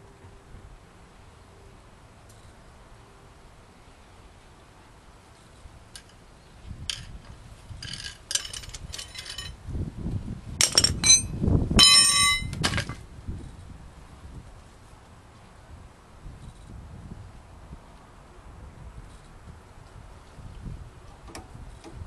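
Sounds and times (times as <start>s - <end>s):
metal tools clinking: 7.8s - 9.6s, 10.6s - 13.0s.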